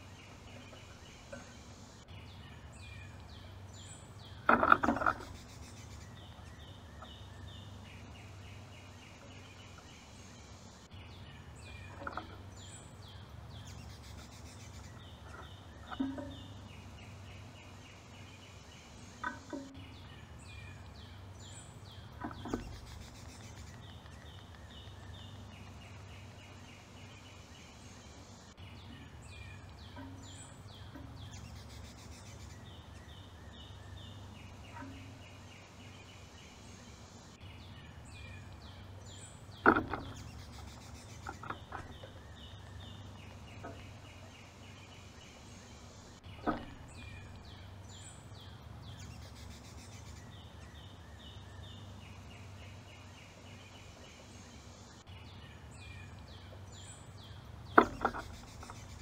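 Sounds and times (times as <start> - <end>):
low steady hum: 0.0 - 59.0
songbirds singing: 0.0 - 59.0
bird knocking on metal pole: 4.4 - 5.4, 15.3 - 16.6, 22.2 - 23.0, 29.8 - 31.5, 39.5 - 43.9, 46.4 - 47.3, 57.7 - 59.0.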